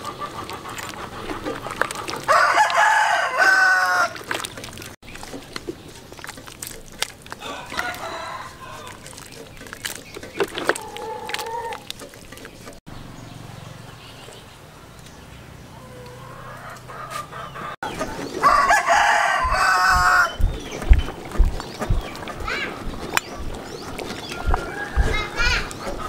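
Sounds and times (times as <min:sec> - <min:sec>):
chicken calls: 0:00.0 - 0:04.6, 0:07.4 - 0:12.8, 0:15.7 - 0:26.0
rooster crowing: 0:02.3 - 0:04.2, 0:07.4 - 0:09.0, 0:18.4 - 0:20.4, 0:24.4 - 0:25.4.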